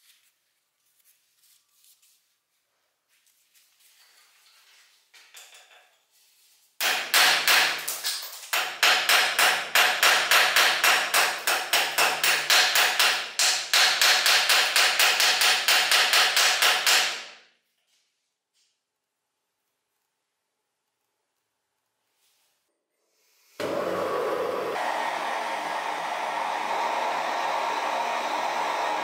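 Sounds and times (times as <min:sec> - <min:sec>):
hammer striking iron bar: 0:06.8 - 0:17.4.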